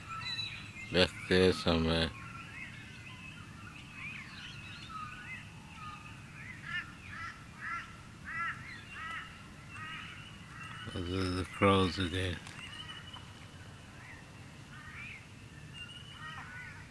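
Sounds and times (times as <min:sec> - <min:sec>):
birds whistling and calling: 0:00.0 - 0:16.9
crows cawing: 0:06.6 - 0:11.4, 0:14.0 - 0:15.2, 0:16.1 - 0:16.9.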